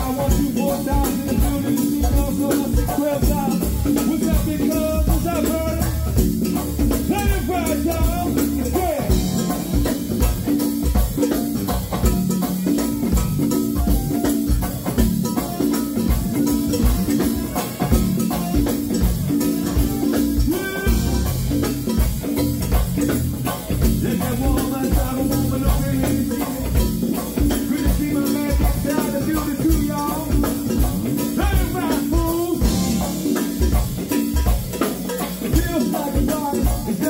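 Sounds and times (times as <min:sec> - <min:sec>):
live band playing: 0:00.0 - 0:37.0
people singing: 0:24.0 - 0:33.2.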